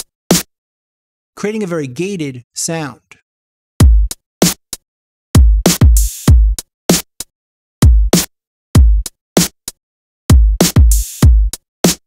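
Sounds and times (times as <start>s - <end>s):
programmed drum loop: 3.8s - 4.6s, 5.4s - 6.6s, 7.8s - 9.5s, 10.3s - 12.0s.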